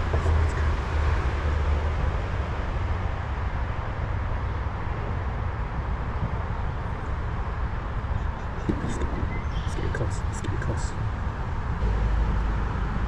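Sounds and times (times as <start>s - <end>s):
outdoor background rumble and hiss: 0.0s - 13.0s.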